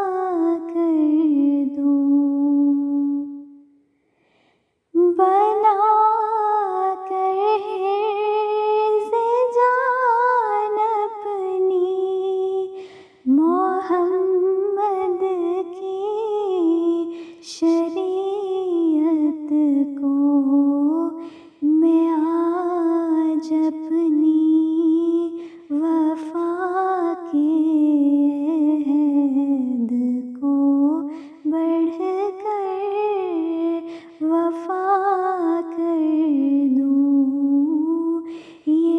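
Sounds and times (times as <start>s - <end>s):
short breaths: 3.8s - 4.9s, 12.8s - 13.2s, 21.2s - 21.6s, 38.2s - 38.7s.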